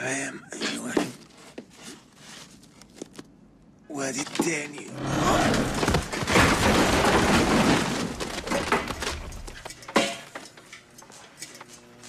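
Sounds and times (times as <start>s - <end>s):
books and shelving crashing: 4.9s - 10.3s.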